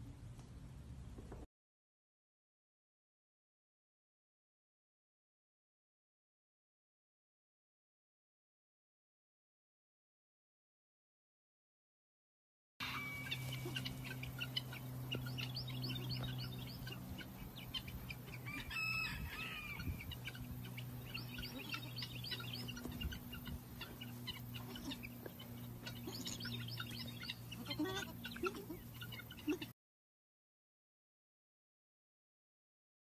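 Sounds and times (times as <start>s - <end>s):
chicks peeping: 12.8s - 29.7s
steady low hum: 12.8s - 29.7s.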